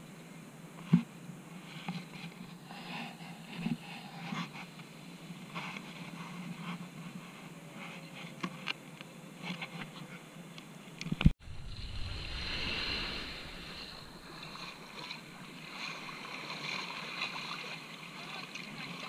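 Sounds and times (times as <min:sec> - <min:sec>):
sea surf washing up: 0:11.4 - 0:19.0.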